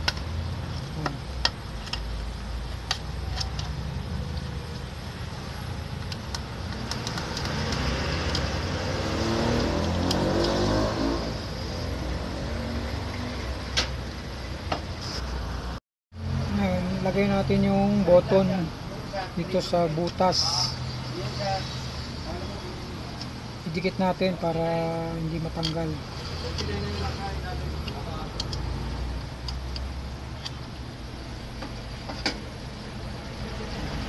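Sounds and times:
steady low hum: 0:00.0 - 0:34.0
vehicle engine revving: 0:06.7 - 0:13.8.

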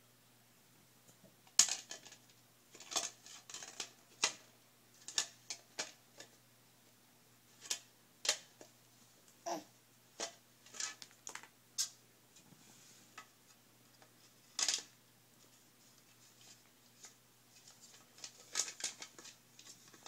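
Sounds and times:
plastic toy parts clacking: 0:01.6 - 0:06.3, 0:14.6 - 0:14.9, 0:17.8 - 0:20.0.

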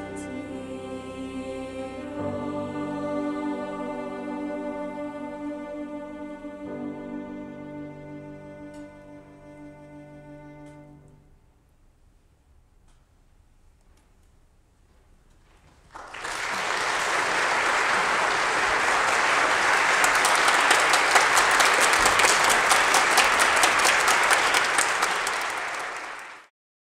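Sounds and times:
audience applause: 0:15.9 - 0:26.5.

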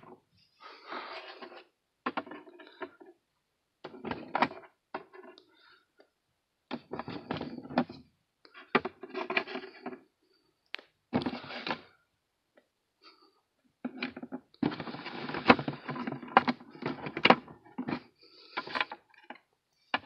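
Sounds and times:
handling knocks and rustles: 0:06.7 - 0:08.0.

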